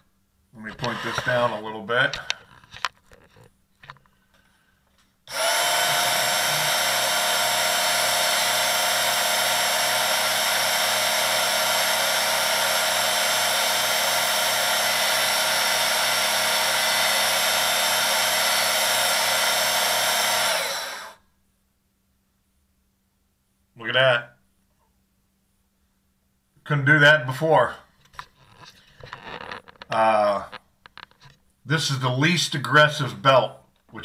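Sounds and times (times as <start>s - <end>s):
electric belt sharpener whining: 0.8s - 1.6s, 5.3s - 21.2s.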